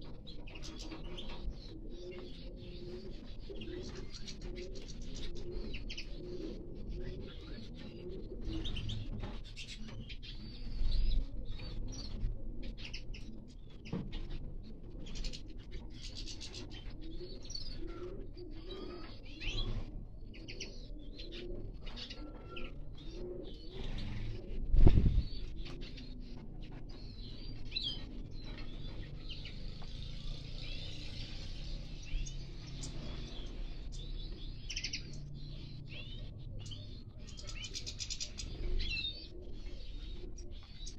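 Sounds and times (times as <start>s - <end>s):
finches chirping: 27.0s - 40.9s.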